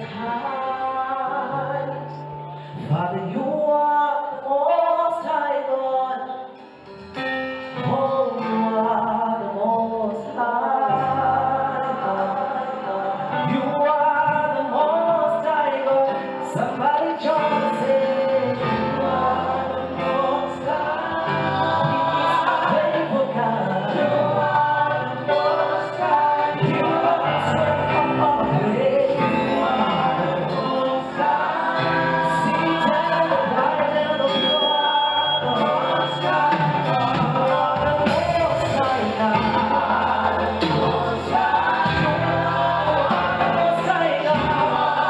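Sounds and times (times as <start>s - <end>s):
group singing gospel: 0.0s - 6.6s, 7.8s - 45.0s
instrumental backing with bass line: 10.9s - 45.0s.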